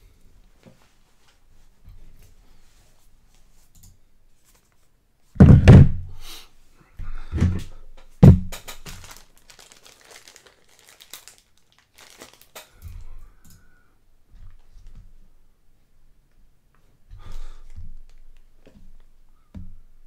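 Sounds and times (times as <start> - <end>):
heavy thunks on a tabletop: 5.4 - 6.1
plastic crinkling: 8.7 - 12.8.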